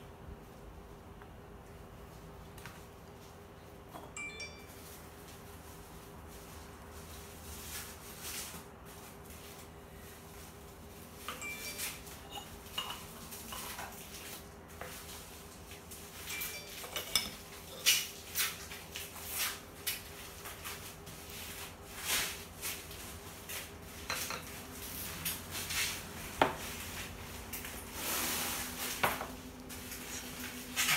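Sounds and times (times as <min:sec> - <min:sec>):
teapots and cups clinking: 0:11.2 - 0:14.1, 0:16.2 - 0:18.1, 0:24.0 - 0:24.5.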